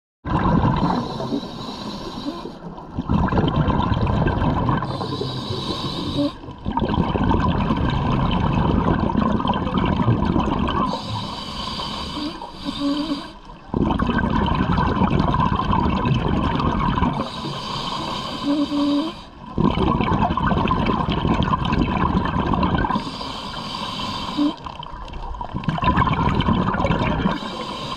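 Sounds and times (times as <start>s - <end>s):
bubbling exhalations: 0.3s - 11.2s, 12.1s - 23.2s, 24.2s - 27.9s
hissing regulator breaths: 0.8s - 2.7s, 4.8s - 6.5s, 10.9s - 13.5s, 17.2s - 19.4s, 22.9s - 24.6s, 27.2s - 27.9s.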